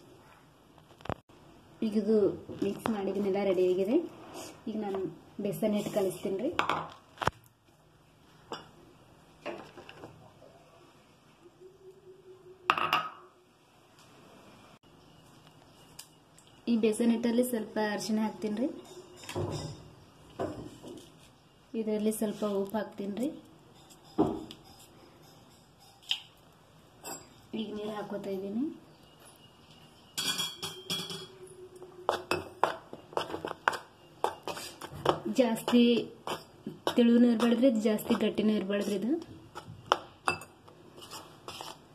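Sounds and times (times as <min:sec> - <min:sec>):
bowls knocking on a counter: 0:12.7 - 0:13.3
metal spoon stirring batter: 0:32.0 - 0:41.9.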